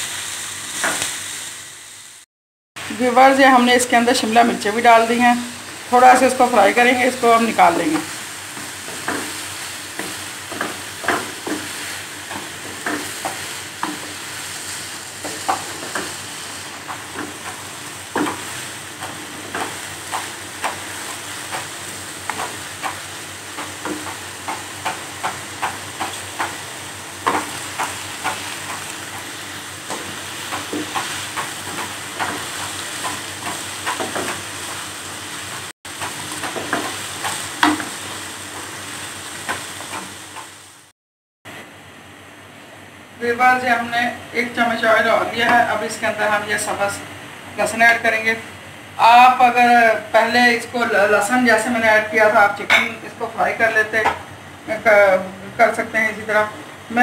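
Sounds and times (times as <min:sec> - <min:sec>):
vegetables sizzling in a wok: 0:00.0 - 0:40.9.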